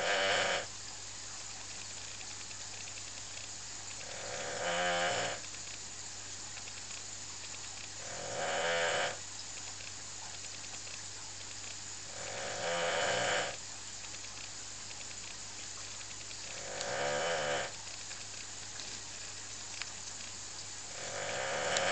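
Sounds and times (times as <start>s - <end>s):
dog snoring: 0.0s - 0.7s, 4.0s - 5.4s, 8.0s - 9.2s, 12.1s - 13.6s, 16.4s - 17.8s, 20.9s - 21.9s.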